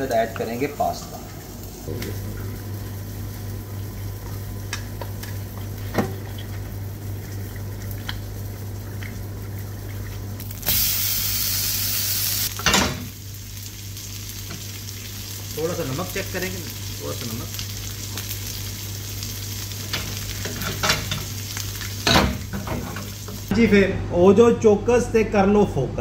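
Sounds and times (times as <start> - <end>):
pasta sizzling in a pan: 1.3 - 5.9, 6.5 - 23.5
loud hiss: 10.6 - 12.5.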